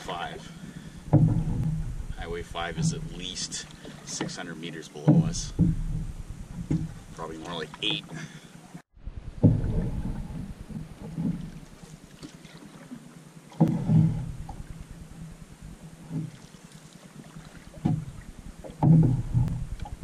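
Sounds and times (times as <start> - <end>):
paddle strokes and water slapping: 0.0 - 20.0
wind on microphone: 1.0 - 3.2, 5.2 - 7.2, 9.0 - 11.8.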